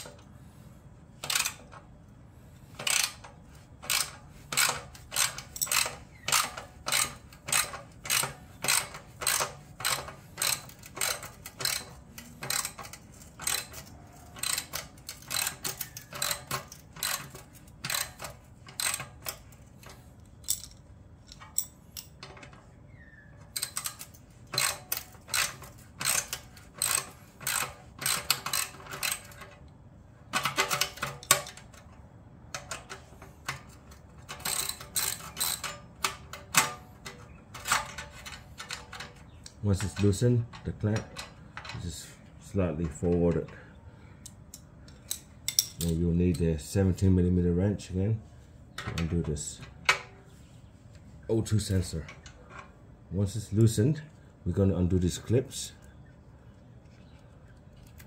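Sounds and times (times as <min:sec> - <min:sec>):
ratchet wrench clicking: 0:01.2 - 0:01.8, 0:02.7 - 0:22.2, 0:23.5 - 0:29.5, 0:33.4 - 0:36.7.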